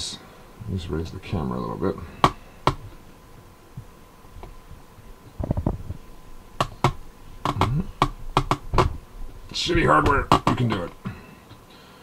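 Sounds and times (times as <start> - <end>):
low thumps: 2.2 - 11.2.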